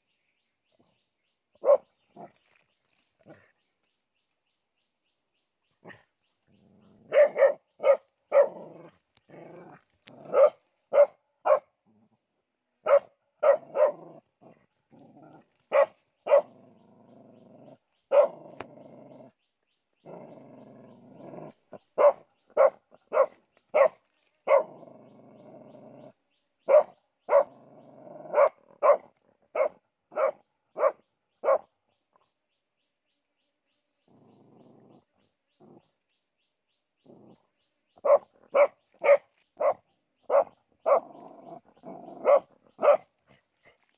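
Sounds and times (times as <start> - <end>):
dog barking excitedly: 7.1 - 8.5, 10.3 - 11.7, 12.9 - 14.0, 15.7 - 16.5, 18.1 - 18.4, 22.0 - 24.7, 26.7 - 27.5, 28.3 - 31.7, 38.0 - 41.0, 42.2 - 43.1
dog growling: 8.3 - 10.6, 13.4 - 19.4, 20.0 - 23.3, 24.5 - 29.0, 34.0 - 36.0, 40.3 - 43.4.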